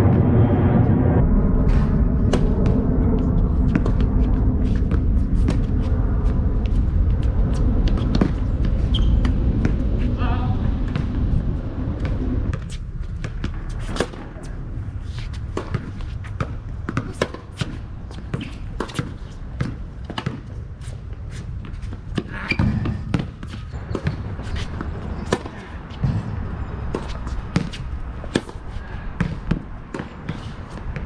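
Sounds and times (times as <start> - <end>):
low outdoor rumble: 0.0 - 31.0
tennis balls bouncing on hard court: 15.1 - 31.0
tennis balls struck by rackets: 15.4 - 20.6, 21.6 - 31.0.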